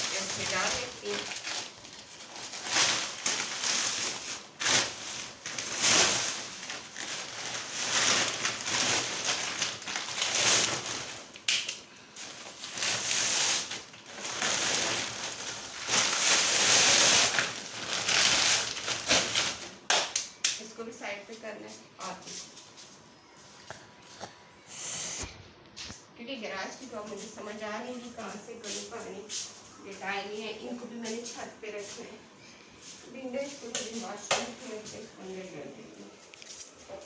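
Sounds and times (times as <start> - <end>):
paper sacks crumpling and rustling: 0.0 - 19.9.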